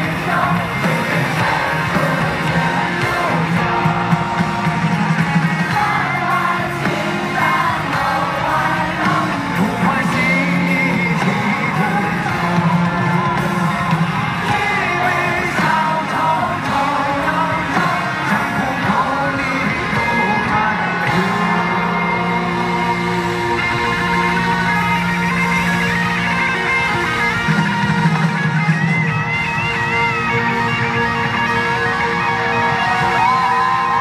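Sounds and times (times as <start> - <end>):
man singing: 0.0 - 24.5
backing music: 0.0 - 34.0.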